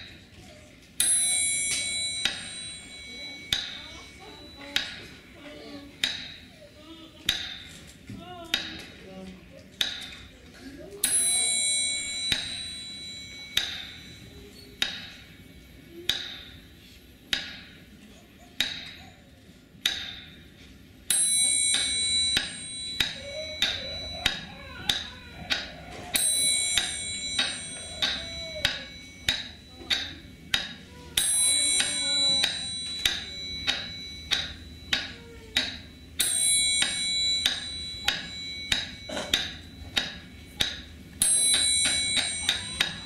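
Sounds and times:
metallic bell-like strikes: 1.0 - 6.4, 11.0 - 16.6, 21.1 - 43.0.

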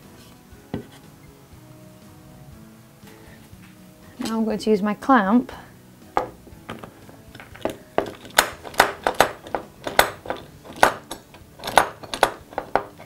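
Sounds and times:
metal clamp clicking and knocking: 6.2 - 13.0.

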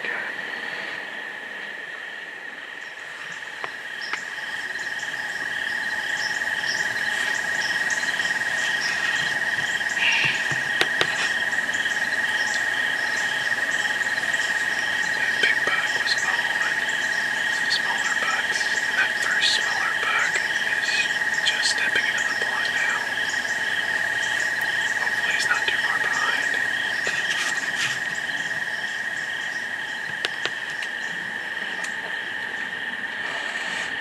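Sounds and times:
crickets trilling: 0.0 - 34.0.

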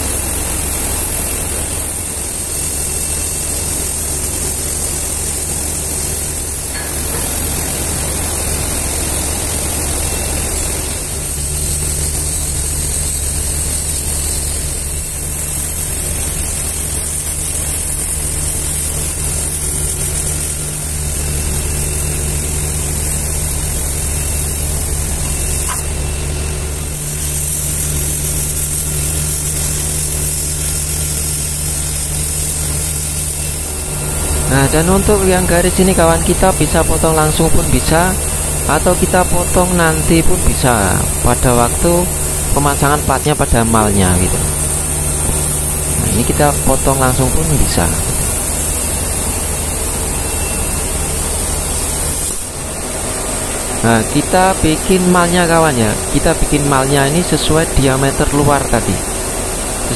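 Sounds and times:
cutting torch hissing: 0.0 - 59.9.

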